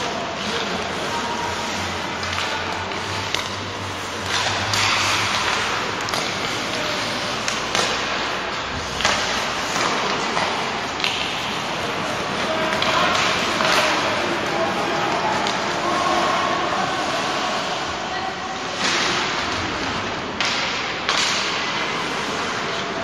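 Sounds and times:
hockey sticks clacking: 0.0s - 17.9s, 18.6s - 23.0s
skate blades scraping ice: 0.3s - 16.0s, 21.4s - 23.0s.

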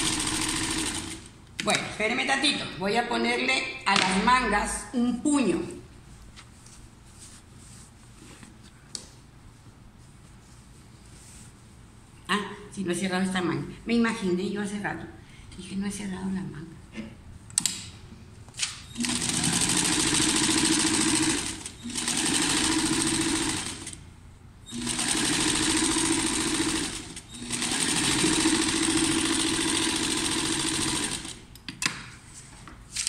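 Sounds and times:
electric sewing machine stitching: 0.0s - 1.3s, 18.9s - 24.0s, 24.7s - 31.4s.

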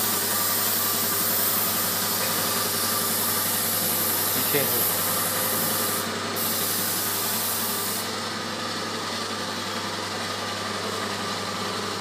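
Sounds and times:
paint spray gun hissing: 0.0s - 8.1s
steady machine hum: 0.0s - 12.0s.

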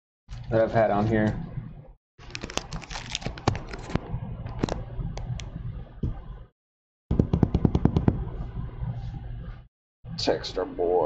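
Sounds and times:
steady low hum: 3.3s - 6.5s, 7.1s - 11.0s.

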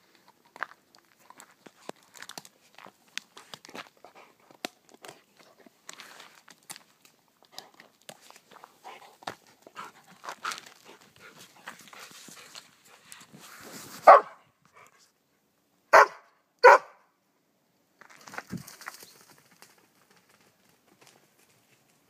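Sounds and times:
rustling: 0.0s - 15.1s
dog barking: 14.0s - 14.4s, 15.9s - 17.0s.

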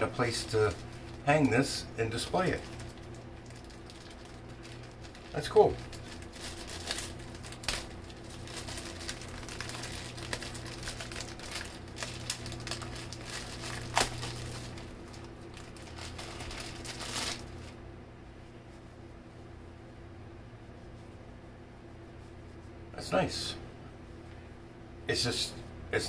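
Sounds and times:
packaging rustling and crinkling: 0.3s - 17.8s.

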